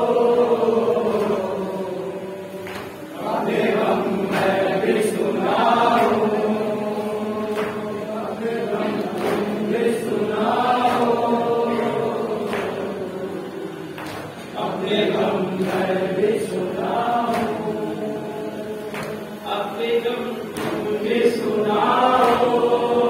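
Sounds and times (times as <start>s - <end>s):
men chanting together: 0.0s - 23.0s
hands slapping chest: 18.9s - 19.2s.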